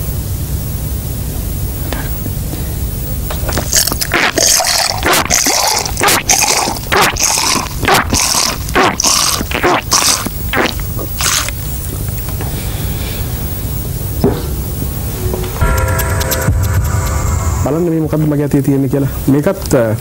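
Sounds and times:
water gushing from mouth: 3.7s - 11.6s.

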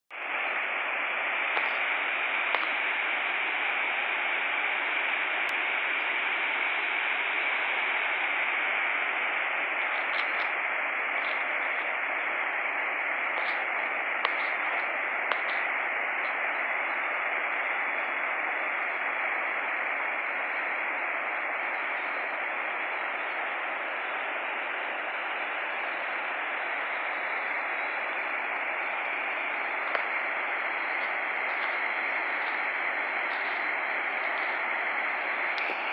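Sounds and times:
faint clicks: 2.4s - 2.8s, 14.2s - 15.7s.

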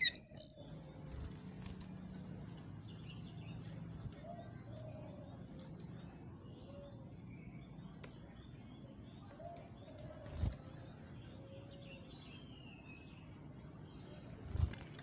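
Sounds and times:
high bird chirps and whistles: 0.0s - 1.5s.

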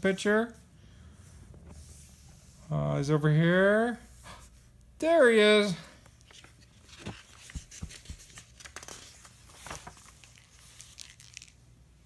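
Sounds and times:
paper pages rustling: 6.1s - 11.6s.

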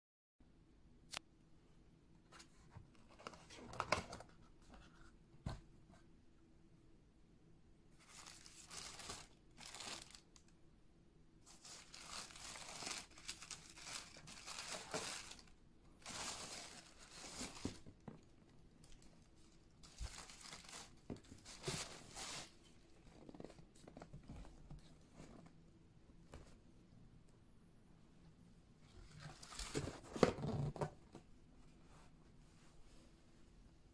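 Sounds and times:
tissue paper crinkling: 8.0s - 10.4s, 11.4s - 17.8s, 18.8s - 22.6s.

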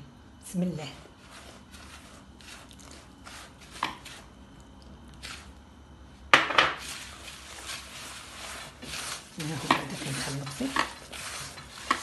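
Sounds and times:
hand rubbing crumbs in bowl: 1.1s - 4.4s, 6.8s - 12.0s.

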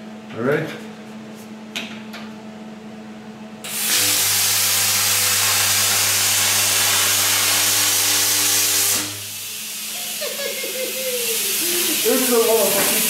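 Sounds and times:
low electrical buzz: 0.0s - 13.0s
plasma cutter air hiss: 3.7s - 13.0s.

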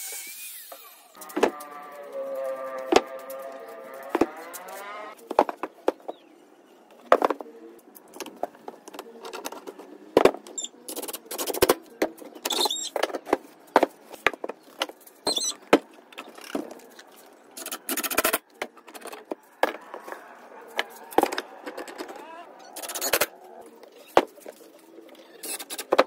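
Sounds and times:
wooden panels knocking and scraping: 2.8s - 3.4s, 4.0s - 6.3s, 17.6s - 23.4s
short squeaks: 12.4s - 13.0s, 15.2s - 15.6s, 20.9s - 24.2s.

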